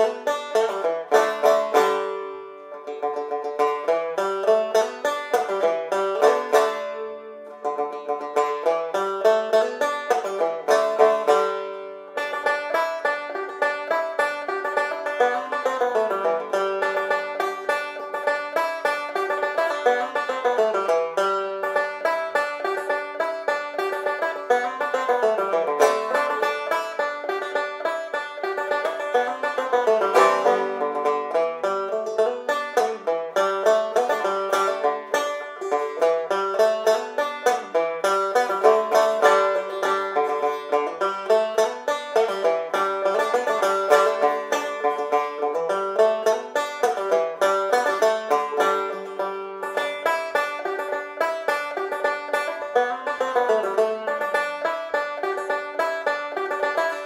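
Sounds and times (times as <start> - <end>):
plucked-string tune: 0.0 - 57.0.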